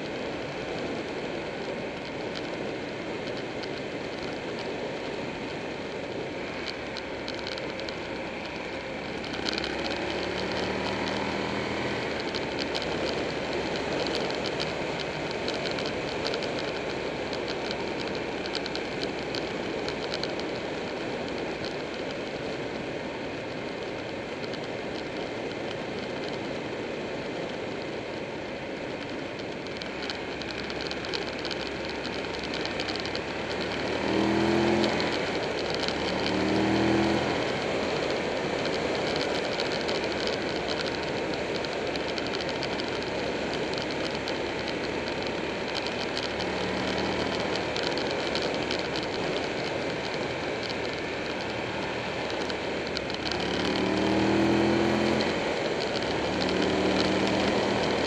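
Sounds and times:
wind and road rush: 0:00.0 - 0:58.0
motorcycle engine revving: 0:06.5 - 0:20.6, 0:30.1 - 0:58.0.

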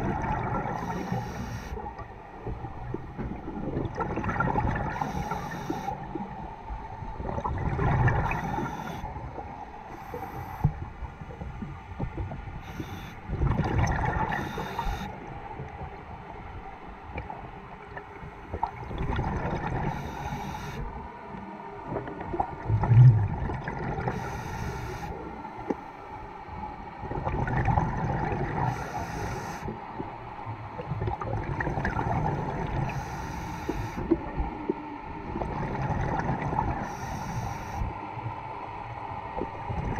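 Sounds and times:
faint steady whine: 0:00.0 - 0:39.9
diver breathing through regulator: 0:04.9 - 0:06.0, 0:09.9 - 0:10.8, 0:12.6 - 0:13.2, 0:14.3 - 0:15.1, 0:19.9 - 0:20.9, 0:24.1 - 0:25.2, 0:28.7 - 0:29.7, 0:32.9 - 0:34.1, 0:36.8 - 0:37.9
rumbling bubble bursts: 0:22.0 - 0:24.1.

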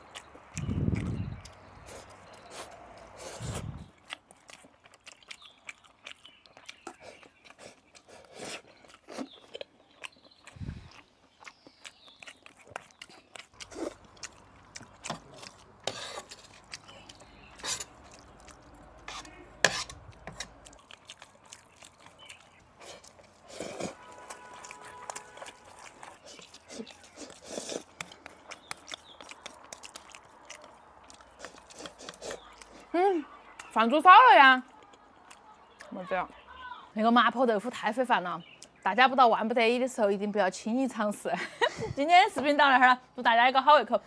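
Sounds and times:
person chewing food: 0:00.0 - 0:33.8, 0:34.6 - 0:36.0
mouth clicks and taps: 0:27.3 - 0:32.7.

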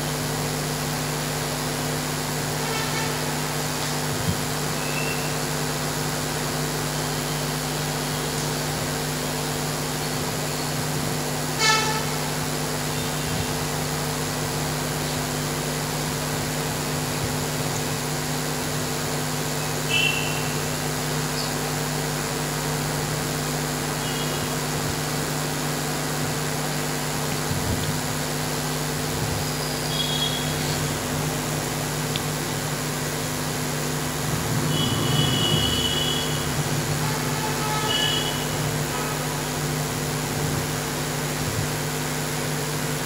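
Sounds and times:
electrical hum and hiss: 0:00.0 - 0:43.0
short pitched toot: 0:11.6 - 0:12.2, 0:19.9 - 0:20.6, 0:29.8 - 0:30.7, 0:34.6 - 0:39.3.

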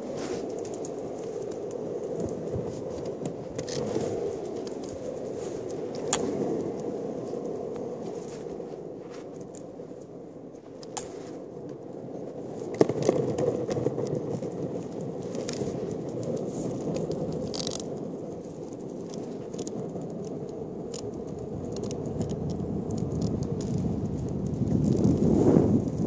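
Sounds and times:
small clicks and rattles: 0:00.0 - 0:06.8, 0:12.4 - 0:25.2
longboard wheels rolling on asphalt: 0:00.0 - 0:26.0.

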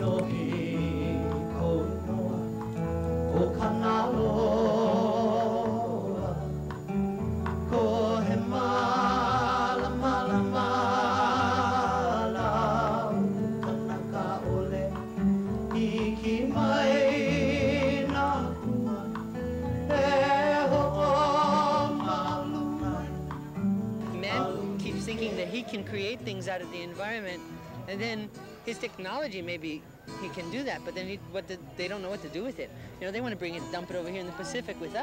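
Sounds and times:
person singing with vibrato: 0:00.0 - 0:06.8, 0:07.6 - 0:23.4, 0:24.0 - 0:25.7
acoustic guitar: 0:00.0 - 0:35.0.

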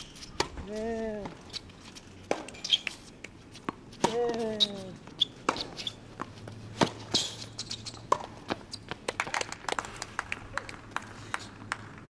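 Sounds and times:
shoe squeak: 0:00.0 - 0:00.6, 0:01.4 - 0:08.9
racket hitting tennis ball: 0:02.2 - 0:08.7.

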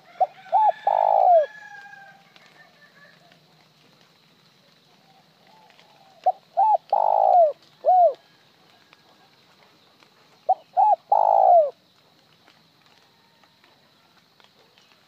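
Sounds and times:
dove cooing: 0:00.0 - 0:01.7, 0:05.1 - 0:08.3, 0:10.5 - 0:11.8.

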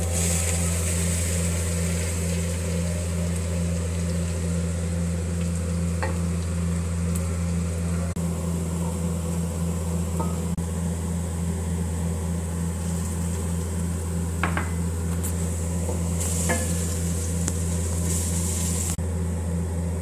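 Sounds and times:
onions being stirred: 0:00.0 - 0:07.6, 0:11.9 - 0:19.0
onions sizzling in oil: 0:00.0 - 0:19.0
steady low hum: 0:00.0 - 0:20.0.

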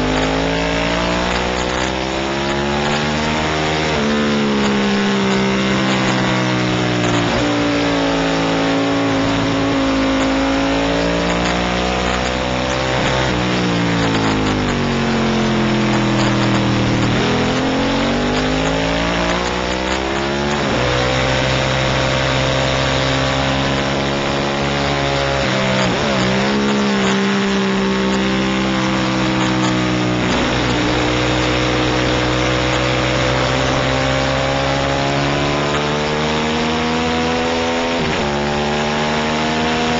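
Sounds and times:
racing motorcycle engine: 0:00.0 - 0:39.9
wind and road noise: 0:00.0 - 0:39.9.

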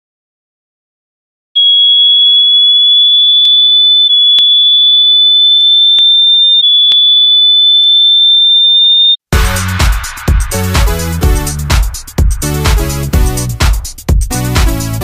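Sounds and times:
high-pitched electronic beep: 0:01.6 - 0:09.2.

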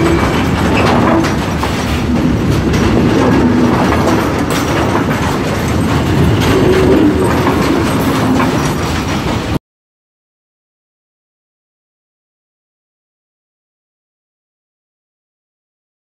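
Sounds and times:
freight train wheels rumbling: 0:00.0 - 0:09.6
wheels clattering over rail joints: 0:00.0 - 0:09.6.

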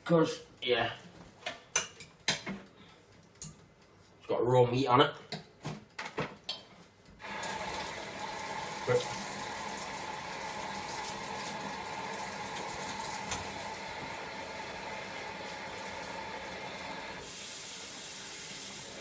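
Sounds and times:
tap water running into sink: 0:07.2 - 0:19.0.

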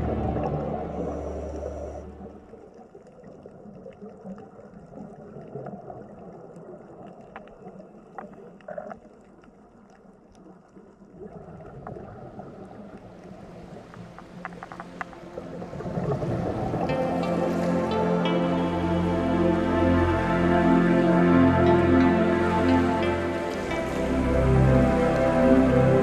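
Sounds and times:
water rushing and gurgling: 0:00.0 - 0:26.0
faint clicks: 0:13.6 - 0:16.8.

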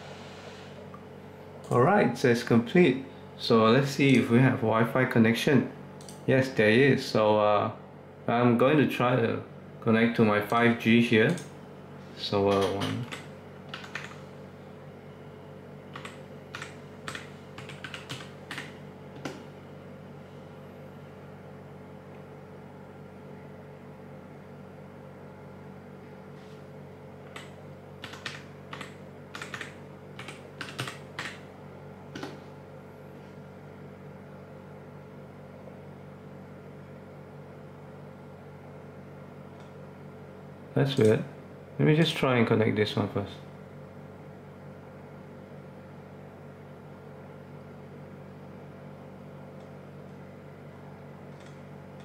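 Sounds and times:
steady low hum: 0:00.0 - 0:52.0
keyboard keystrokes clicking: 0:12.6 - 0:14.2, 0:15.9 - 0:19.4, 0:27.3 - 0:31.4.

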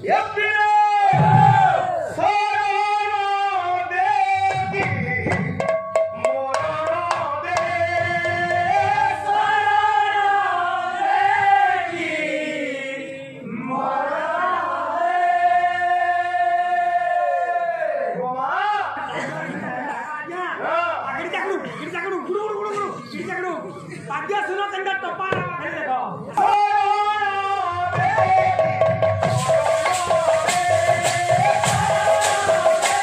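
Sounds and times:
sharp percussion strokes: 0:28.4 - 0:33.0.

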